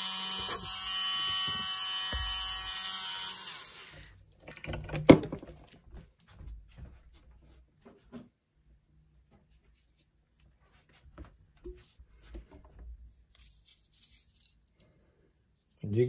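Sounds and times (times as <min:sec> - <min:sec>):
rotary tool whining: 0:00.0 - 0:04.1.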